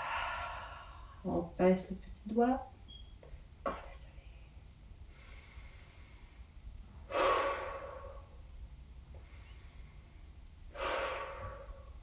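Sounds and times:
woman breathing: 0.0s - 1.3s, 5.0s - 12.0s.

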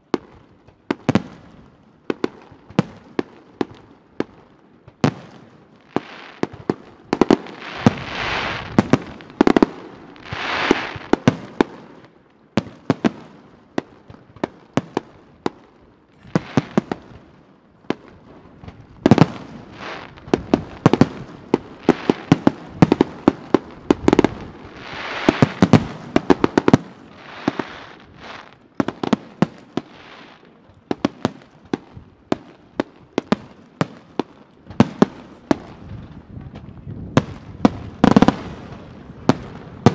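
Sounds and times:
crackling firework hiss: 5.8s - 13.2s, 16.2s - 36.1s.

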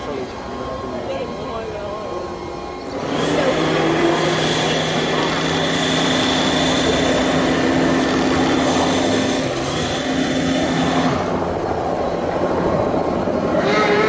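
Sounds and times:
engine droning: 0.0s - 14.0s
loud rushing noise: 2.9s - 14.0s.

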